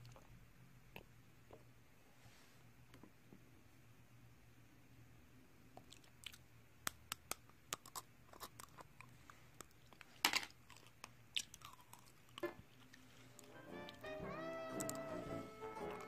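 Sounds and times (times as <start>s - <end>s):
sugar coating crunching when chewed: 7.1s - 13.5s.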